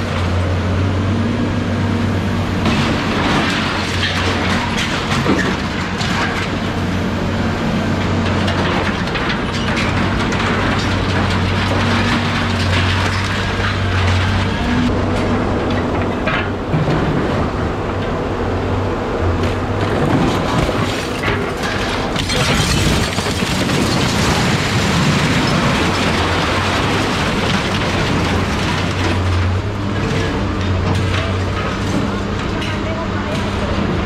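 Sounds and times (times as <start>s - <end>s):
engine-like hum: 0.0s - 34.0s
scrap metal rattling and clanking: 8.0s - 17.6s, 19.8s - 34.0s.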